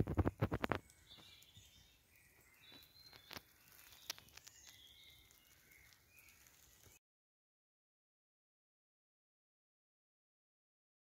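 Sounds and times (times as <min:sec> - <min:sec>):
faint songbird calls: 0:00.2 - 0:07.0.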